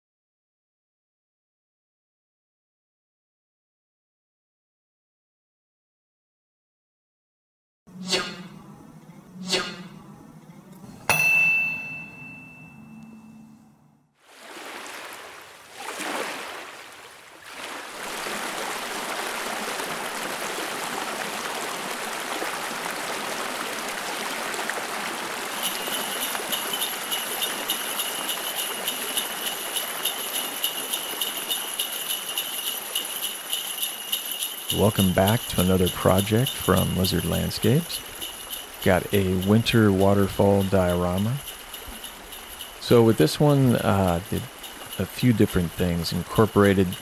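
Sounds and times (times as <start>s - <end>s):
sharp ringing hit: 11.1s - 13.5s
rushing running water: 14.3s - 47.0s
sleigh bells jingling: 25.5s - 47.0s.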